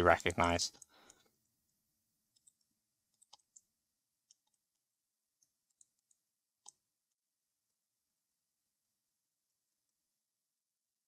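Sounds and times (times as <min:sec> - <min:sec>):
mouse and keyboard clicks: 0:02.3 - 0:04.7, 0:05.4 - 0:06.8.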